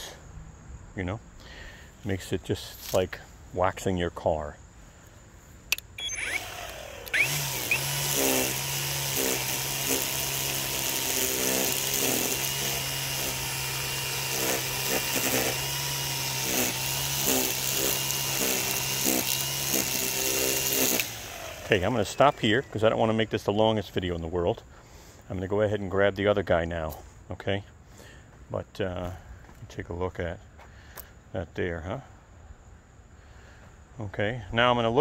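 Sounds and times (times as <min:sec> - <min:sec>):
string trimmer whining: 0:05.7 - 0:23.9.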